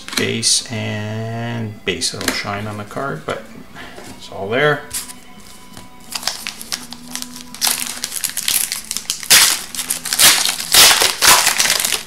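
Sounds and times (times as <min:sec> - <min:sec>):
foil wrapper crinkling: 0:05.0 - 0:12.0.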